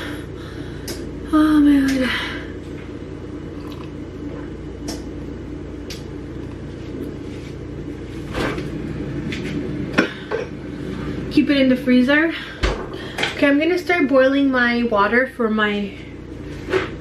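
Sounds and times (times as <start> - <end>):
low hum: 0.0 - 17.0
person gulping water: 3.5 - 4.6.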